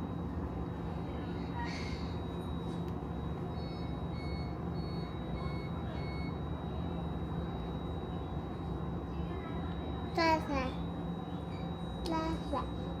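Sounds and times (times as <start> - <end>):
tram interior hum: 0.0 - 13.0
high electronic beeps: 2.2 - 6.5.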